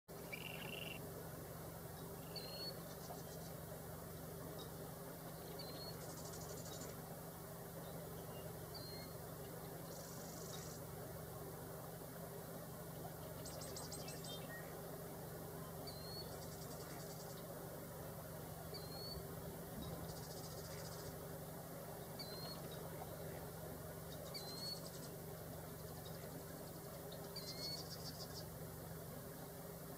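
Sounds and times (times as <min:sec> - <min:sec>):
steady low hum: 0:00.1 - 0:29.9
bird rattling trills: 0:00.2 - 0:01.0.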